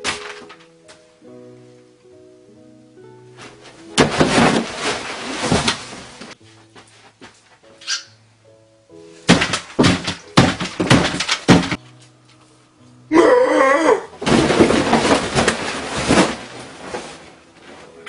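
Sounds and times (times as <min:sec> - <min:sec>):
table crashing over: 0:03.9 - 0:06.0, 0:09.3 - 0:11.8, 0:14.2 - 0:16.6
dishes crashing and clattering: 0:09.3 - 0:11.8, 0:14.2 - 0:16.5
wavering yell: 0:13.1 - 0:14.2.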